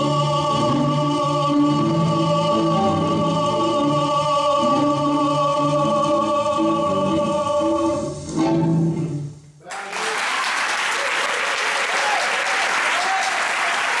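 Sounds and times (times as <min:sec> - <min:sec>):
tango music: 0:00.0 - 0:09.3
audience applause: 0:09.6 - 0:14.0.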